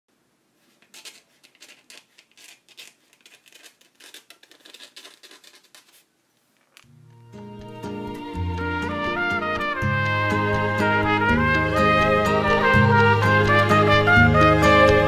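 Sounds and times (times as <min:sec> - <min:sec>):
music with low held notes: 0:06.9 - 0:15.0.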